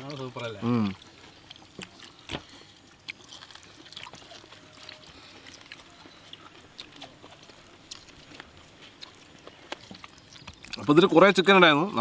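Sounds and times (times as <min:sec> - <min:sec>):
chewing: 0:00.0 - 0:11.5.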